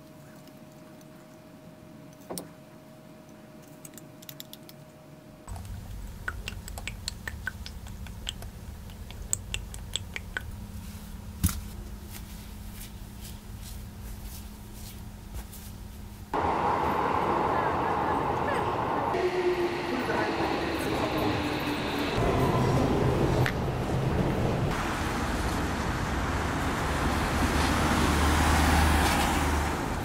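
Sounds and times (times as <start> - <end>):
low room rumble: 5.4 - 19.2.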